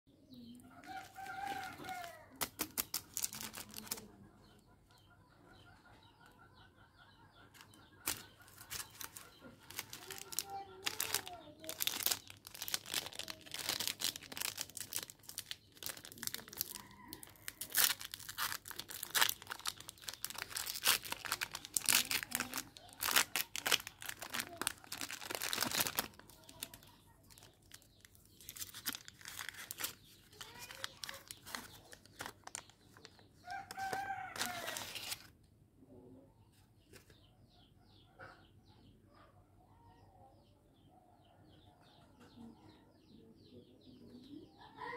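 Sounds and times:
foil crinkling: 1.0 - 4.1, 8.0 - 35.3
wrapper being torn open: 1.1 - 4.0, 8.0 - 33.1, 33.7 - 35.3.

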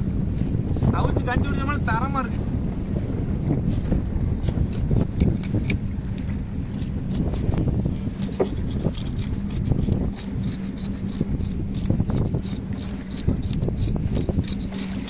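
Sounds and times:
low rumble and hum: 0.0 - 15.0
knife scraping fish scales: 4.4 - 5.8, 6.7 - 15.0.

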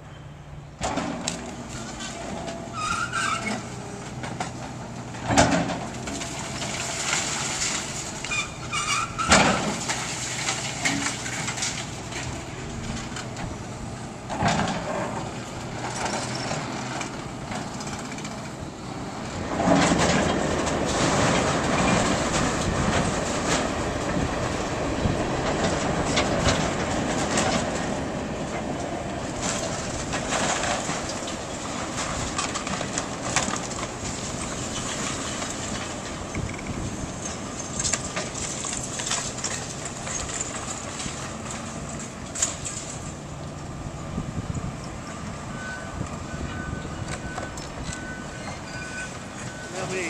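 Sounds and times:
excavator engine running: 0.0 - 50.0
rubble crunching and clattering: 29.2 - 43.3.

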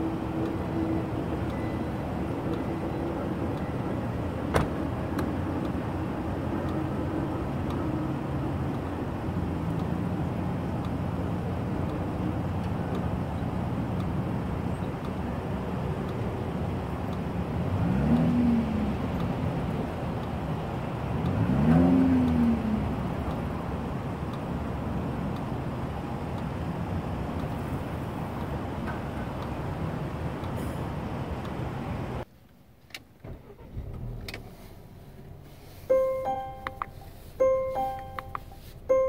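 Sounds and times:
engine revving: 17.2 - 24.2
car engine idling: 33.1 - 39.0.

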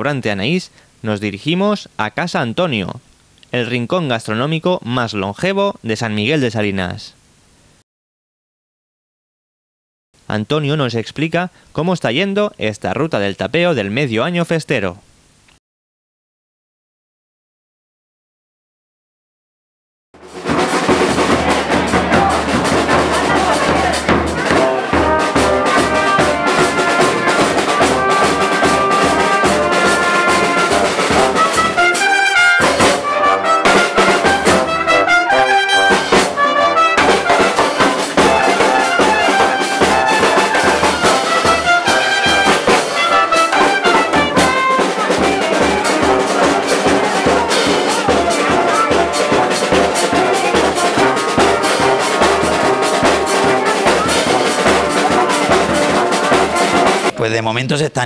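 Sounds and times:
brass instruments playing: 20.2 - 57.5
snare and bass drum beat: 20.2 - 58.0.

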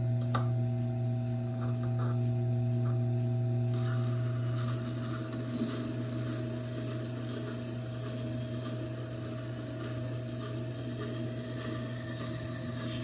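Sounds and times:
sharpener motor hum: 3.7 - 13.0.

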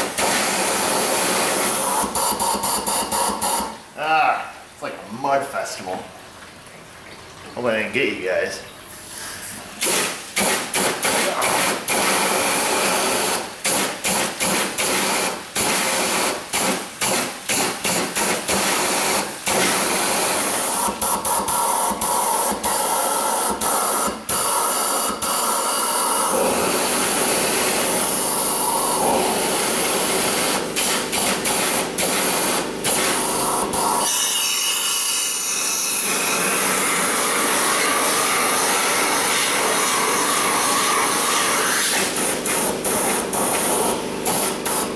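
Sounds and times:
air and water spraying hiss: 9.0 - 25.7.

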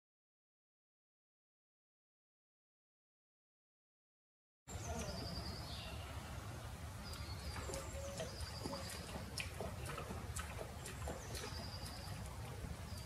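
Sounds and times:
birds chirping: 4.7 - 13.0.

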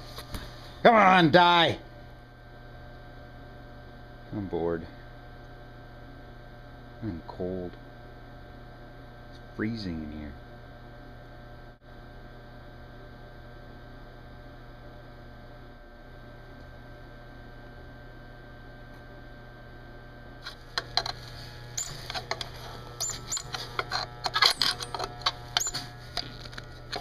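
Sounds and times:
garbage disposal motor humming: 20.3 - 27.0.

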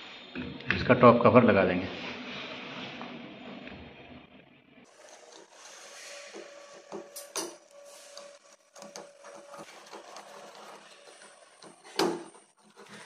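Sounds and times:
plastic cover scraping and clicking: 8.1 - 13.0.

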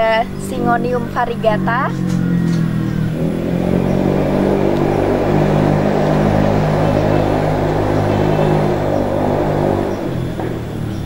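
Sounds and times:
engine running: 0.0 - 11.0.

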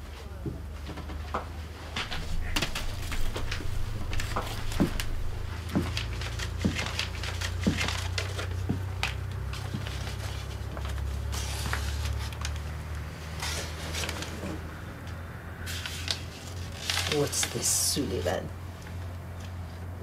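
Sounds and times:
footsteps on wooden floor: 0.4 - 10.8
steady low hum: 1.7 - 10.4
cloth rustling: 1.8 - 12.5
paper being handled: 2.0 - 14.6, 15.7 - 17.9.

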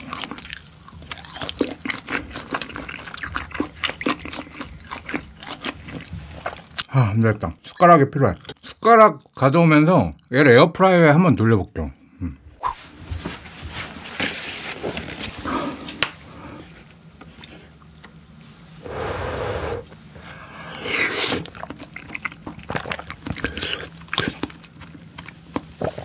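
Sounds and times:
wet chewing and smacking: 0.0 - 6.9, 7.6 - 9.4, 20.9 - 26.0.

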